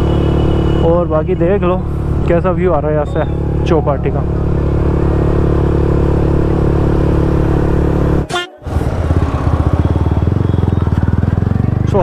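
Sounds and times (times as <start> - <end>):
motorcycle engine running: 0.0 - 12.0.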